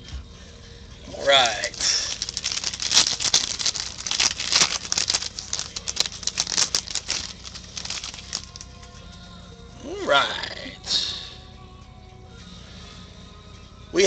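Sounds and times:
plastic wrapper crinkling: 0:01.3 - 0:09.0.

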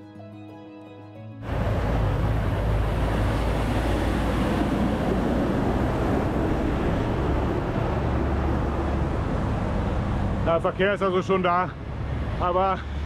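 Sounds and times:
tanker truck passing: 0:01.4 - 0:13.0.

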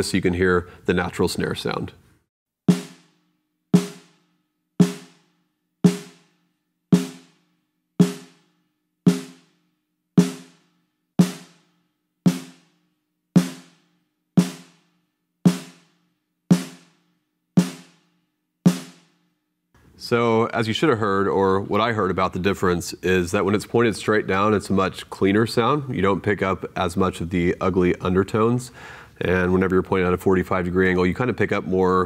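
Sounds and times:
snare drum strokes: 0:02.7 - 0:03.2, 0:03.8 - 0:04.2, 0:04.8 - 0:05.2, 0:05.9 - 0:06.3, 0:07.0 - 0:07.4, 0:08.0 - 0:08.4, 0:10.2 - 0:10.6, 0:13.4 - 0:13.8, 0:14.4 - 0:14.8, 0:15.5 - 0:15.9, 0:16.5 - 0:16.9, 0:17.6 - 0:18.0.

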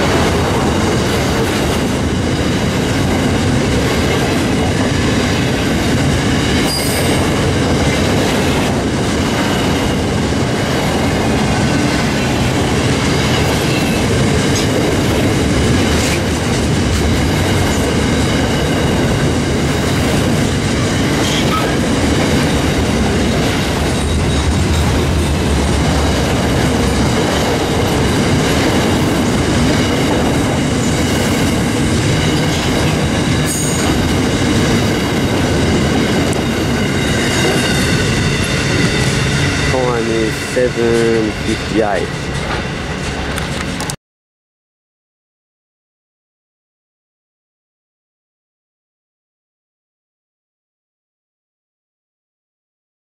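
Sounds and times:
train wheels clacking over rails: 0:00.0 - 0:44.0.

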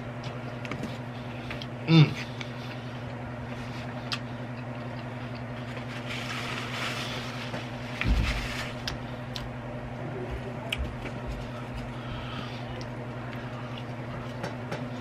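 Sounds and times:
steady low hum: 0:00.0 - 0:15.0
paper napkin rustling: 0:05.6 - 0:08.9.

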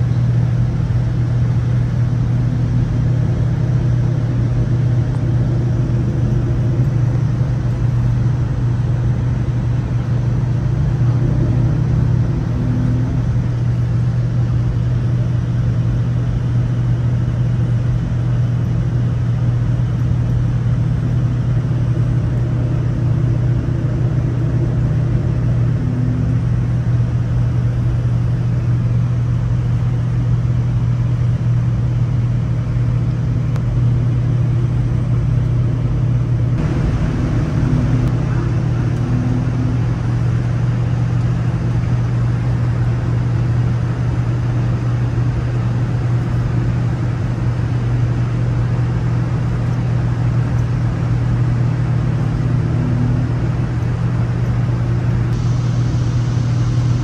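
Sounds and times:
jet engine drone: 0:00.0 - 0:57.0
airflow hiss: 0:55.4 - 0:57.0.

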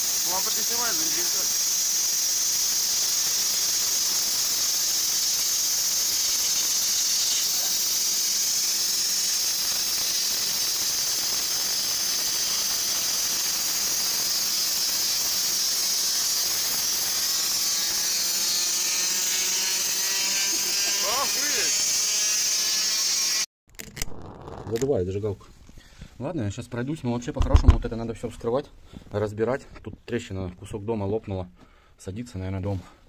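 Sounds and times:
cutting torch hissing: 0:00.0 - 0:23.5.

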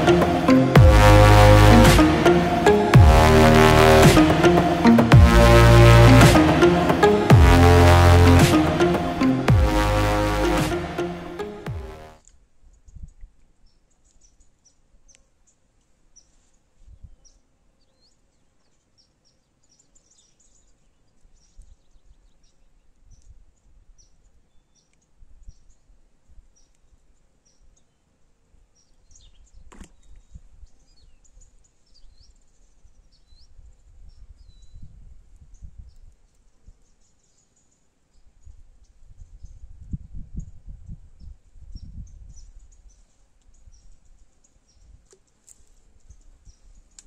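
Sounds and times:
low rumble: 0:00.0 - 0:10.6.

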